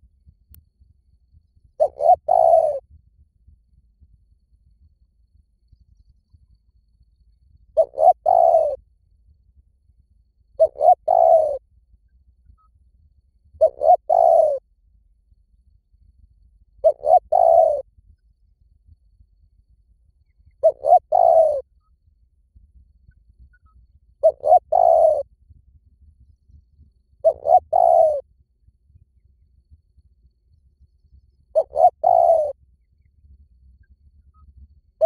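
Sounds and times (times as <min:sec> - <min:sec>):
dove cooing: 0:01.8 - 0:02.8, 0:07.8 - 0:08.8, 0:10.6 - 0:11.6, 0:13.6 - 0:14.6, 0:16.8 - 0:17.9, 0:20.6 - 0:21.7, 0:24.2 - 0:25.3, 0:27.2 - 0:28.2, 0:31.5 - 0:32.6.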